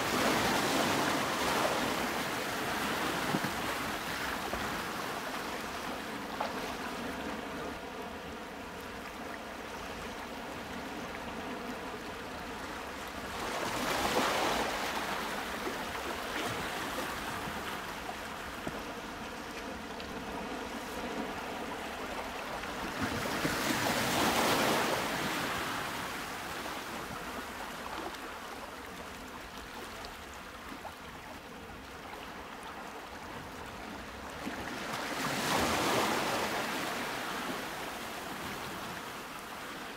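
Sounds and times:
sea waves washing in: 0.0 - 6.4.

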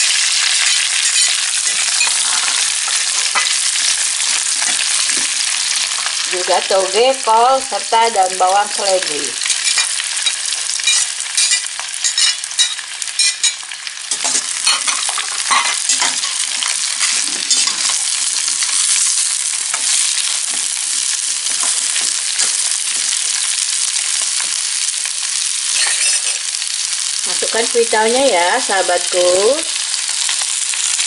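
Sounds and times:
vegetables sizzling in hot oil: 0.0 - 31.0
metal spatula scraping a wok: 14.2 - 18.0.

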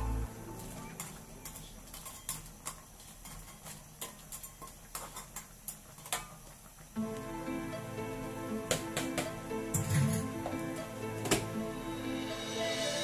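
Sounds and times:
spatula scraping metal wok: 0.6 - 6.0.

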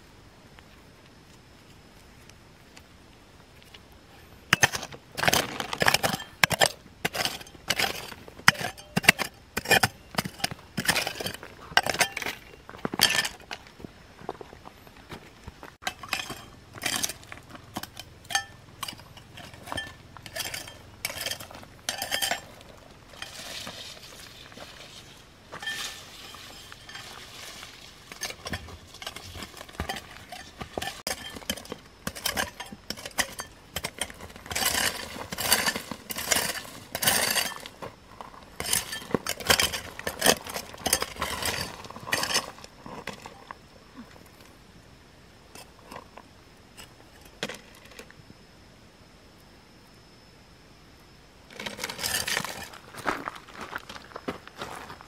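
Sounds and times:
hard objects clinking and knocking: 15.8 - 23.7, 28.0 - 37.8
soft scraping: 19.0 - 31.8.

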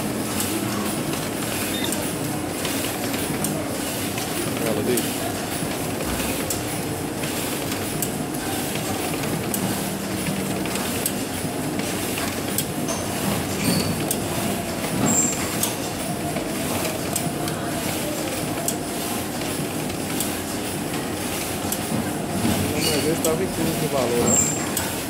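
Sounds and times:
paper collator clattering: 0.3 - 25.0.

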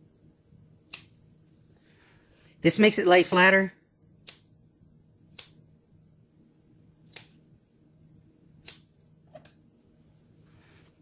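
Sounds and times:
scissors snipping fabric: 7.0 - 7.4.

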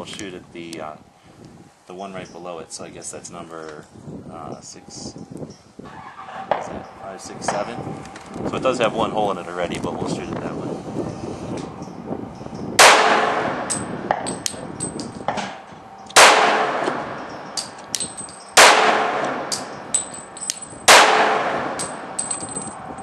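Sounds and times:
pistol shots echoing: 12.8 - 14.3, 16.1 - 17.8, 18.6 - 20.1, 20.9 - 22.2.

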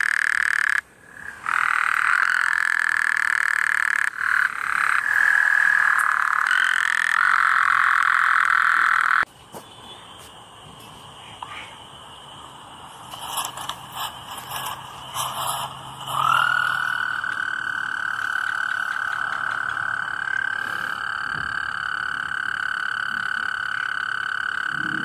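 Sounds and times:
tree frog clicking: 1.4 - 9.3, 16.0 - 24.8
steady high-pitched tone: 11.3 - 25.0.

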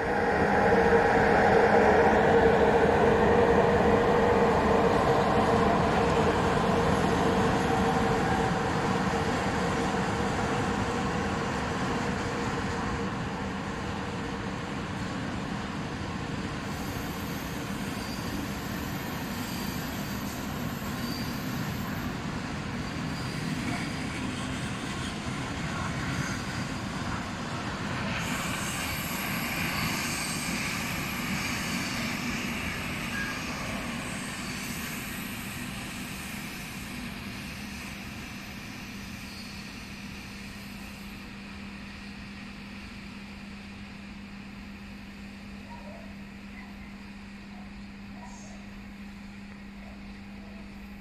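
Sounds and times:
steady low hum: 0.0 - 16.7.

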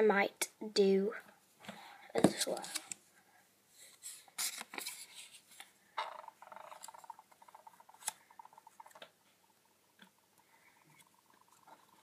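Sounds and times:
faint rapid ticking: 6.0 - 12.0.

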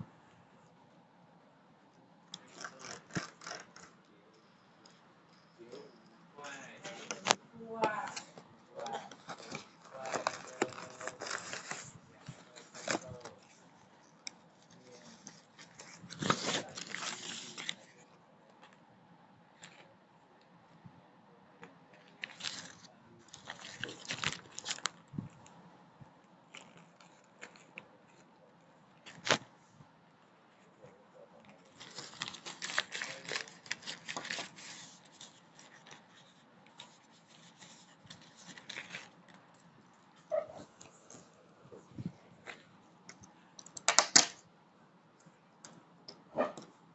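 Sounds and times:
paper crinkling: 2.4 - 4.0, 6.8 - 18.0, 22.0 - 25.6, 31.4 - 44.4.

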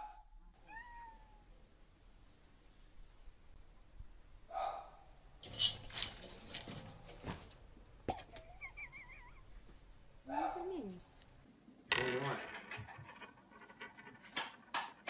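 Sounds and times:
cat cry: 0.6 - 1.5.

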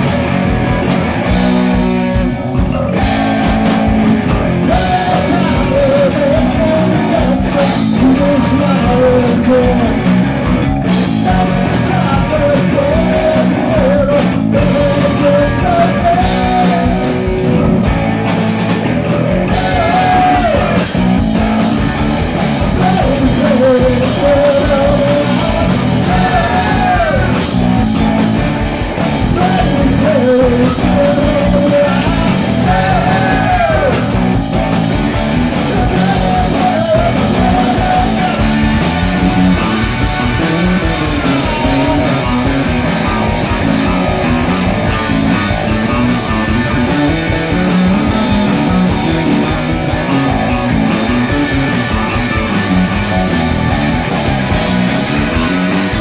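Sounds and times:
rock band playing: 0.0 - 56.0
person singing: 2.7 - 10.2, 11.2 - 17.8, 19.5 - 21.0, 22.7 - 27.6, 29.2 - 34.3, 35.6 - 42.8.

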